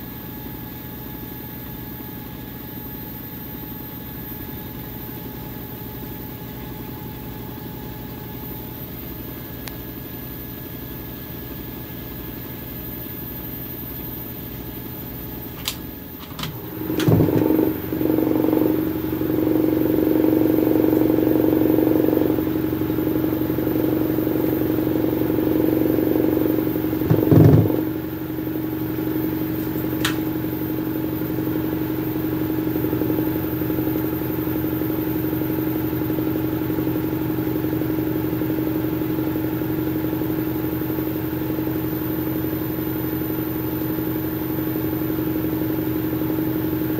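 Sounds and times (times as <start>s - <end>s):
lid clicks: 15.6s - 17.2s
washing machine drum spinning: 15.6s - 41.8s.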